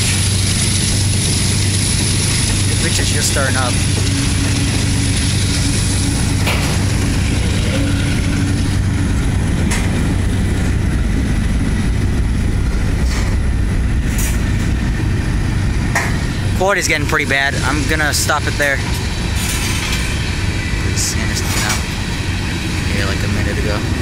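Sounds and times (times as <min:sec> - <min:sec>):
train wheels rumbling on rail: 0:00.0 - 0:24.0.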